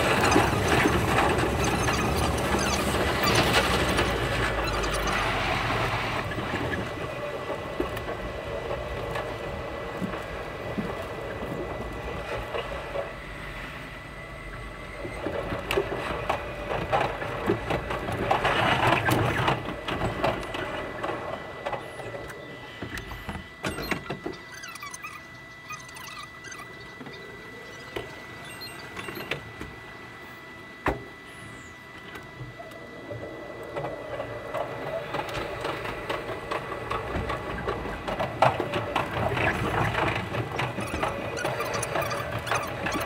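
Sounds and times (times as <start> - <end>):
steady high tone: 23.7 - 29.5.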